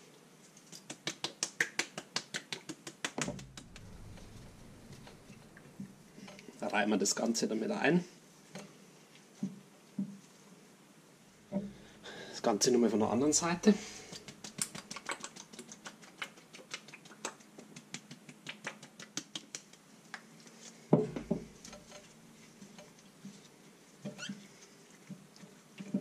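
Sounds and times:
gloved hands rubbing chicken: 13.0s - 20.9s
sauce ticks and splats: 14.1s - 20.3s.

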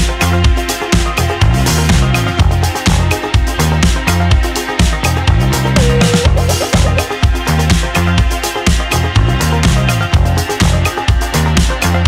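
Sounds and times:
upbeat electronic dance music: 5.8s - 7.4s.

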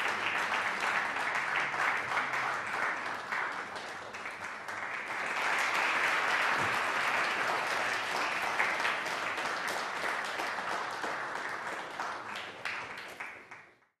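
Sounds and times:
audience applauding: 0.0s - 13.9s.

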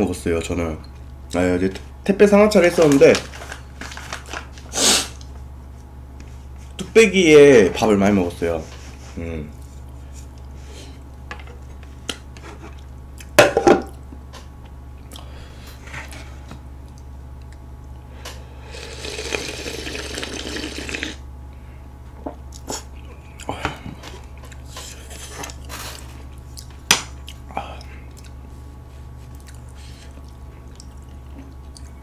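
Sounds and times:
person slurping broth: 18.6s - 21.2s.

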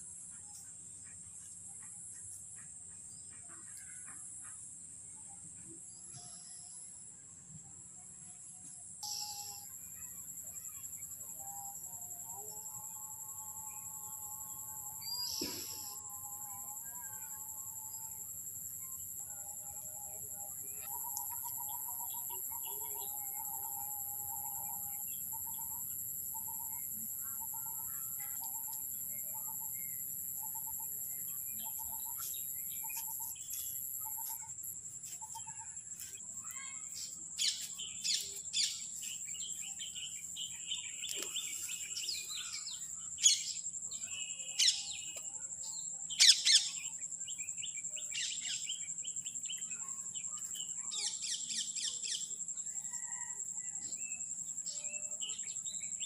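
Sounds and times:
high insect drone: 9.0s - 25.8s, 26.4s - 53.2s.

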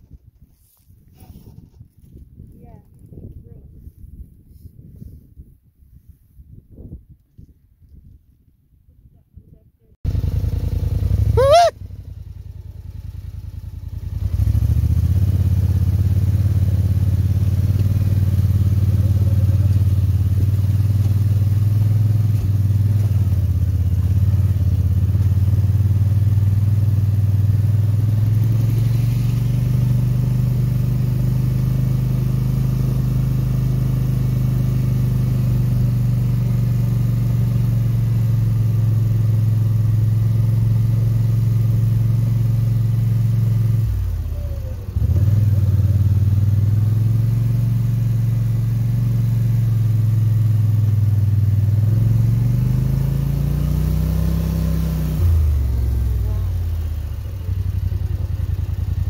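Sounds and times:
dirt bike engine revving: 10.2s - 11.7s, 14.2s - 39.2s, 51.7s - 56.6s.

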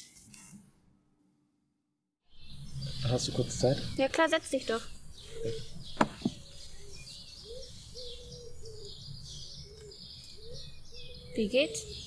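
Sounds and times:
birds chirping: 2.3s - 12.0s
knocks on wooden bench: 6.0s - 6.4s.

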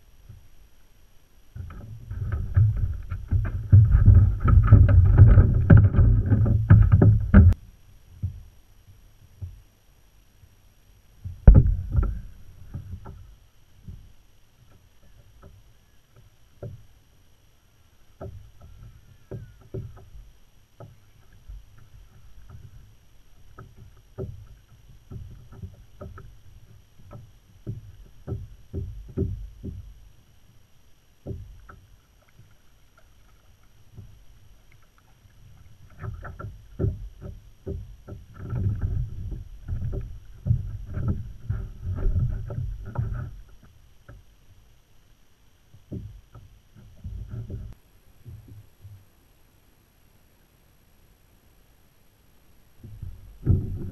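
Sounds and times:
gear knocking on plastic kayak: 1.6s - 7.6s, 18.2s - 20.2s, 20.8s - 30.0s, 31.2s - 32.6s, 33.3s - 44.2s, 45.8s - 48.6s, 52.8s - 53.9s.

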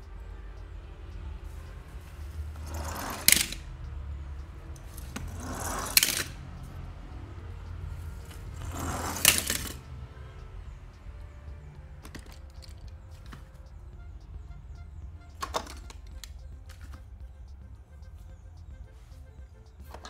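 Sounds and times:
metal toy cars clinking: 2.1s - 3.7s, 4.7s - 6.8s, 8.2s - 10.4s, 12.0s - 13.6s, 15.4s - 17.1s
toy car rolling on plastic board: 2.5s - 3.7s, 4.9s - 6.4s, 8.3s - 9.9s, 12.0s - 13.4s.

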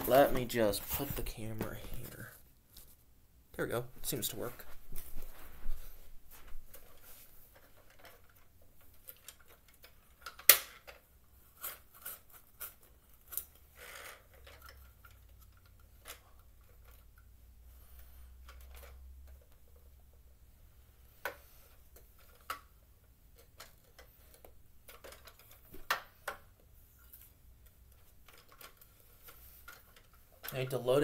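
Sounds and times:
plastic toy excavator clicks and knocks: 7.6s - 17.3s, 18.4s - 20.2s, 21.2s - 26.7s, 27.6s - 30.9s.

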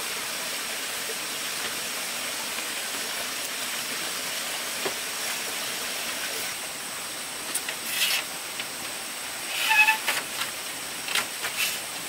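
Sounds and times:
steady hissing: 0.0s - 12.0s.

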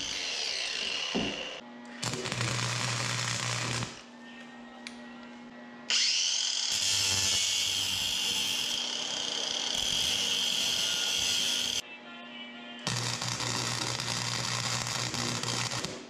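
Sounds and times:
power tool whining on steel rod: 0.0s - 1.6s, 5.9s - 11.8s.

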